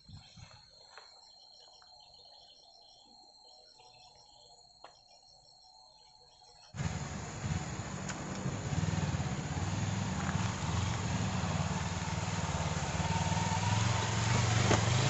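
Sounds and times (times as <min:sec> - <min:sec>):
motorcycle engine at low speed: 0:06.7 - 0:15.0
steady hiss: 0:06.8 - 0:15.0.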